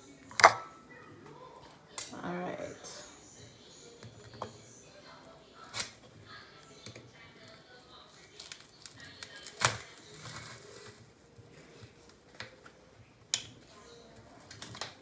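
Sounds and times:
kitchen clicks and knocks: 0:00.3 - 0:00.8.

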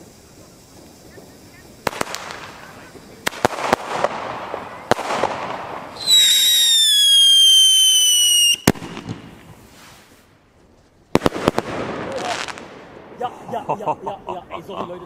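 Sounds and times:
firework bang: 0:00.0 - 0:10.2, 0:11.1 - 0:13.4
firework crackling hiss: 0:00.0 - 0:14.0
firework whistle falling in pitch: 0:06.0 - 0:09.0.

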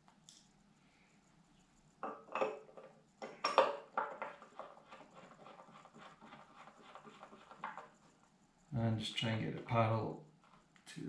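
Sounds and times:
metal clinks and knocks: 0:02.0 - 0:04.8.

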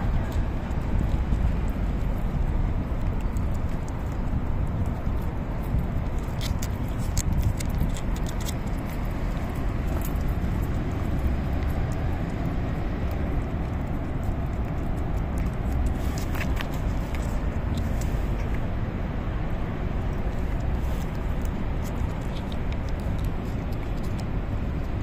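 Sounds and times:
cat tongue licking and smacking: 0:00.0 - 0:25.0
steady low rumble: 0:00.0 - 0:25.0.

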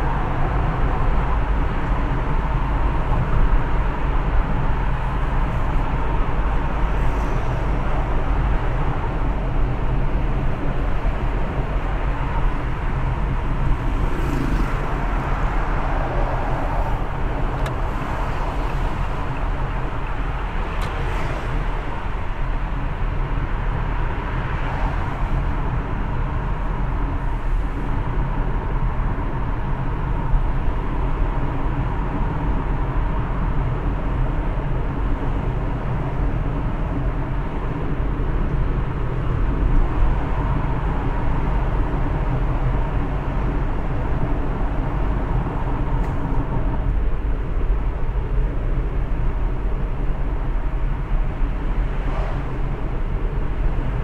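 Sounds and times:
car tyres and engine rumbling: 0:00.0 - 0:54.0.

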